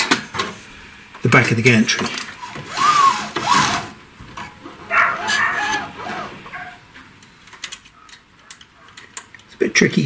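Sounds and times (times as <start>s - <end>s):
metal scraping with squeals: 4.8s - 6.9s.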